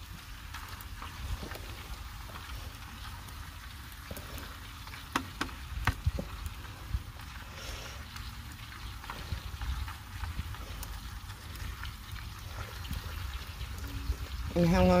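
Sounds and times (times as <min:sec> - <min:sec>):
food sizzling hiss: 0:00.0 - 0:15.0.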